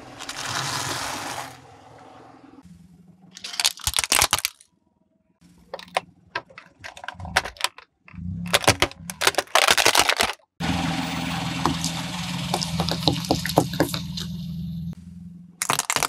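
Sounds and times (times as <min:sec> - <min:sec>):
low engine hum: 0:00.0 - 0:03.4, 0:10.6 - 0:15.6
plastic cracking under tyre: 0:03.4 - 0:04.7, 0:05.7 - 0:10.6, 0:15.6 - 0:16.0.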